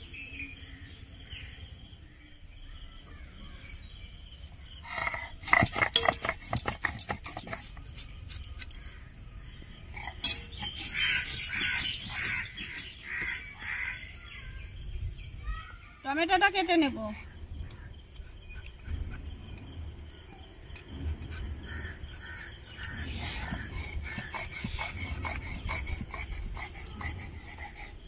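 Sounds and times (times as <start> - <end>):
crows cawing: 11.0 - 14.1.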